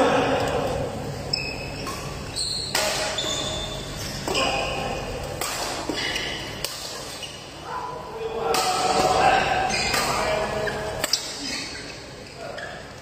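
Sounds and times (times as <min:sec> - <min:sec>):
shoes squeaking on court floor: 0:01.1 - 0:07.6, 0:08.9 - 0:13.0
racket hitting shuttlecock: 0:01.8 - 0:03.2, 0:05.2 - 0:07.1, 0:08.5 - 0:09.3.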